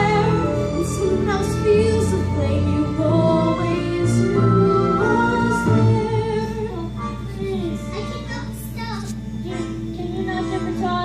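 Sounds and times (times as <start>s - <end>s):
woman singing: 0.0s - 7.2s, 10.0s - 11.0s
instrumental accompaniment: 0.0s - 11.0s.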